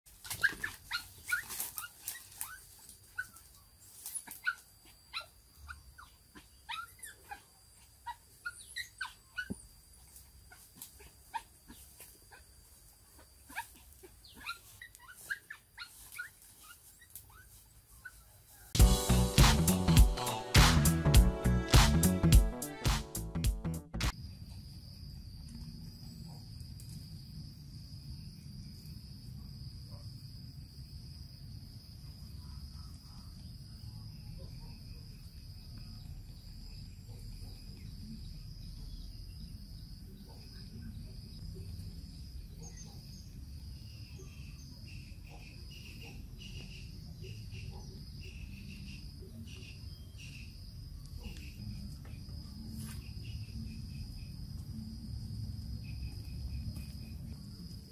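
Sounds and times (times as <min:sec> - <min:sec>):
lower pulsing insect chirp: 0:00.1 - 0:18.7, 0:24.1 - 0:57.9
high-pitched insect trill: 0:33.4 - 0:57.9.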